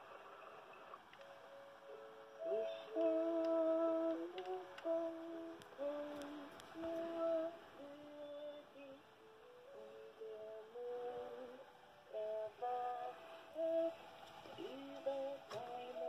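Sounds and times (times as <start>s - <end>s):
electronic lullaby melody: 0.2s - 16.0s
faint clicks: 2.9s - 5.0s, 5.6s - 7.2s.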